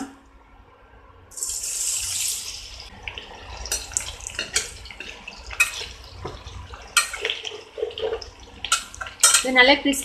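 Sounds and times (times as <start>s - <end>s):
onions sizzling in hot oil: 1.4s - 9.8s
spoon clinking against pan: 8.7s - 9.5s.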